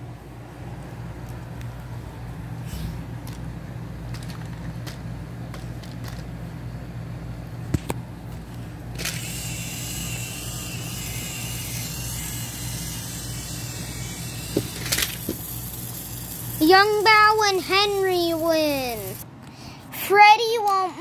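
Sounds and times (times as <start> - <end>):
high motor whine: 8.3 - 19.3
toy train motor hum: 9.0 - 19.2.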